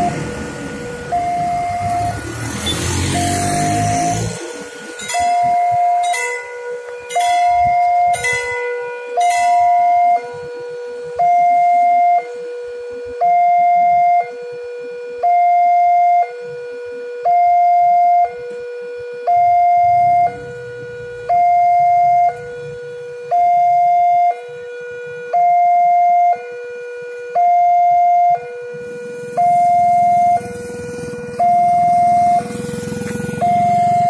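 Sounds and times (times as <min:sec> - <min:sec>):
rushing vehicle: 0:00.0 - 0:13.2, 0:18.3 - 0:25.4, 0:28.3 - 0:34.0
two-tone level crossing alarm: 0:00.0 - 0:34.0.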